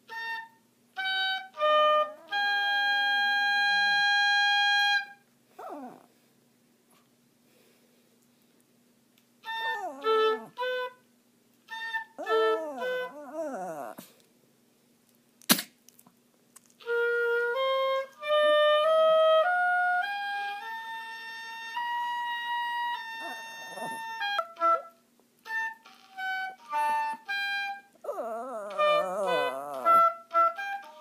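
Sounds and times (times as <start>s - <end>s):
oboe playing: 0.1s - 5.2s, 9.4s - 11.0s, 11.7s - 14.0s, 16.8s - 31.0s
dog howling: 9.5s - 10.7s, 12.2s - 14.1s, 23.2s - 24.1s, 28.0s - 30.2s
sharp click: 15.4s - 16.7s.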